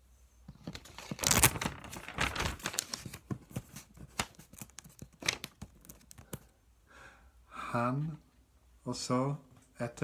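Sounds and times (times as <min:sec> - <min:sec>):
paper rustling and crinkling: 0:00.6 - 0:06.5.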